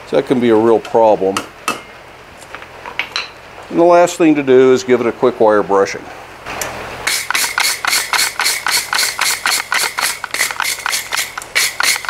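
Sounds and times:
wire brush scraping hot steel: 7.1s - 12.0s.

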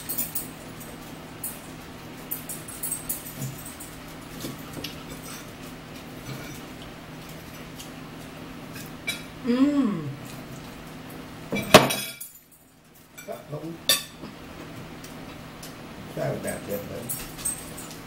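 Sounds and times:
short vocal sound: 9.4s - 10.2s
cutlery clinking on plates: 11.5s - 12.4s.

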